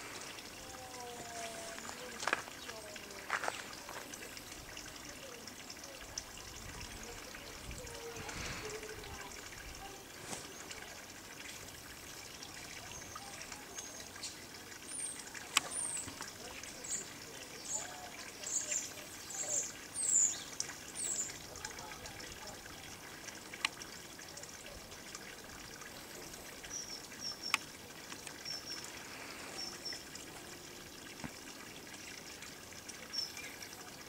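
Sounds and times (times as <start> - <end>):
small birds chirping: 0.0 - 6.2, 12.3 - 30.6, 33.0 - 33.8.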